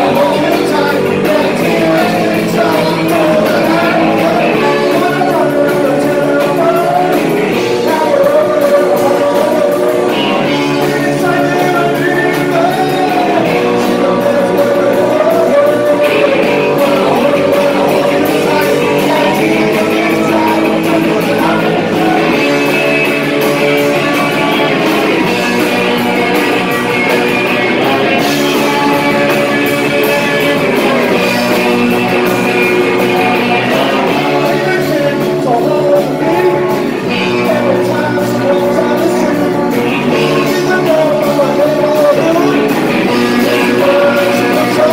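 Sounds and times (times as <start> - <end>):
bass guitar: 0.0 - 44.9
drums: 0.0 - 44.9
electric guitars: 0.0 - 44.9.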